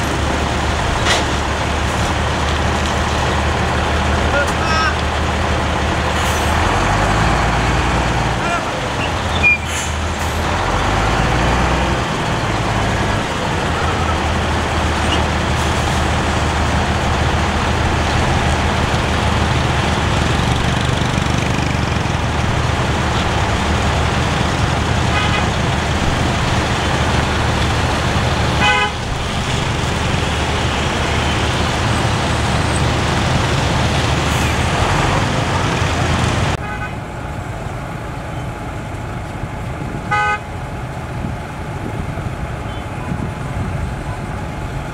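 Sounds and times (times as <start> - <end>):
truck diesel engine running: 0.0 - 44.9
truck horn toots: 25.1 - 25.6, 28.6 - 29.1, 36.6 - 37.1, 40.1 - 40.5.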